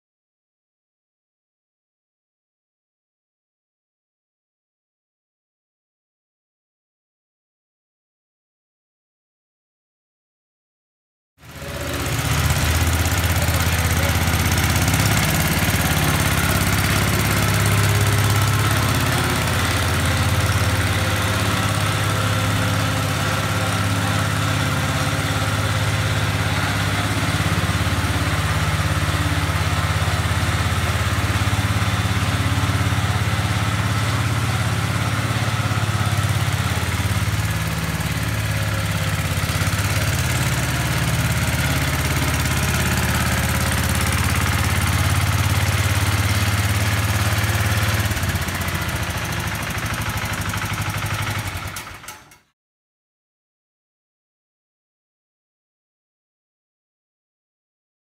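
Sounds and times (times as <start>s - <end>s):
garden tractor engine running: 11.4s - 52.5s.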